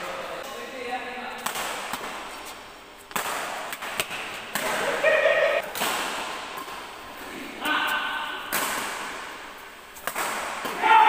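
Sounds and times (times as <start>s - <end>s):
rackets hitting shuttlecock: 1.4s - 6.9s, 7.6s - 11.0s
person shouting: 4.9s - 5.6s, 7.6s - 8.4s, 10.7s - 11.0s.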